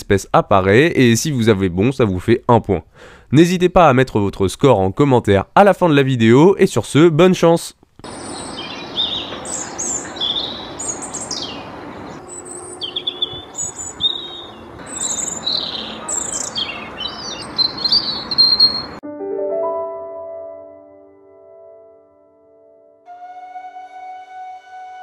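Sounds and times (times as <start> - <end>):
robin singing: 8.0 - 19.0
musical jingle: 19.0 - 25.0.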